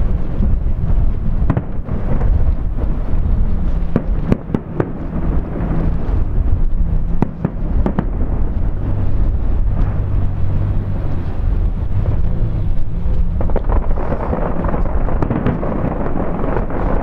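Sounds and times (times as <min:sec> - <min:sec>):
distant fireworks rumble: 0:00.0 - 0:17.0
sharp firework cracks: 0:01.4 - 0:10.2, 0:13.1 - 0:17.0.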